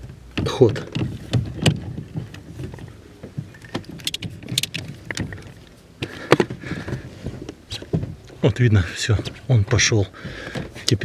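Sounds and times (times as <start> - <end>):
tools clicking and knocking on metal: 3.5 - 5.7.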